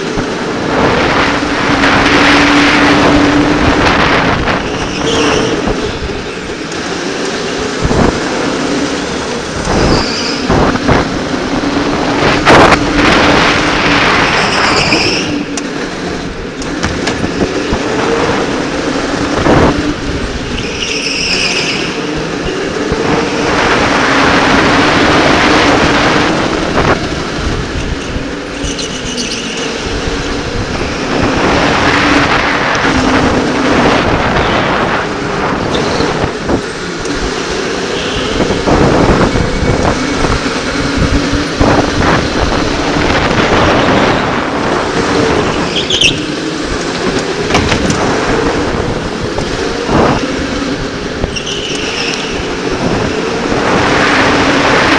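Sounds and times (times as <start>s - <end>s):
electric kart motor whine: 0.0s - 54.9s
wind and tyre rush: 0.0s - 54.9s
tyre squeals: 4.6s - 6.7s, 9.8s - 10.5s, 14.3s - 15.6s, 20.4s - 22.6s, 28.5s - 29.8s, 45.5s - 46.5s, 51.2s - 52.5s.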